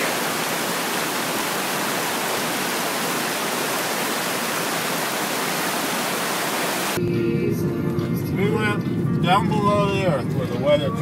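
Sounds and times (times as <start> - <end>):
falling water rushing: 0.0 - 7.0.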